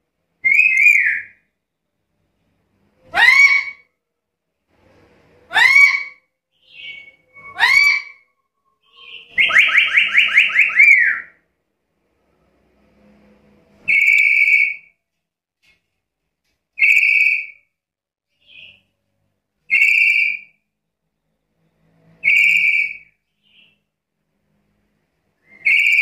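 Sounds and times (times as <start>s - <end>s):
parrot whistled calls: 0.4s - 1.4s, 5.5s - 11.3s, 13.8s - 14.9s, 16.8s - 17.6s, 19.7s - 20.5s, 22.2s - 23.8s, 25.4s - 26.0s.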